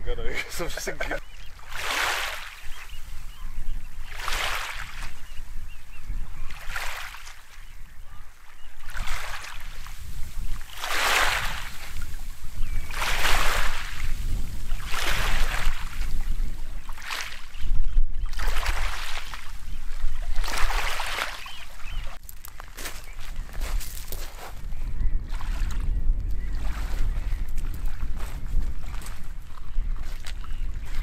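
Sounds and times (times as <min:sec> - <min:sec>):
waves lapping on pebble shore: 0:01.6 - 0:02.9, 0:04.0 - 0:05.1, 0:08.9 - 0:16.2, 0:20.3 - 0:21.9.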